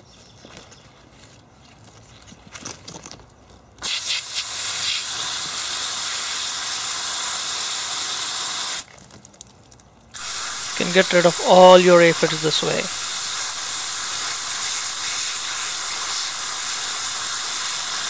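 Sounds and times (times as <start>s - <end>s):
hose spray water hissing on leaves: 3.8s - 8.9s, 10.2s - 18.0s.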